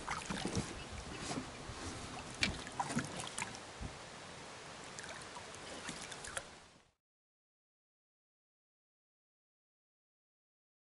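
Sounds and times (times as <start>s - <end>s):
water splashing and dripping: 0.0s - 4.0s, 4.7s - 7.0s
steady background hiss: 0.7s - 6.9s.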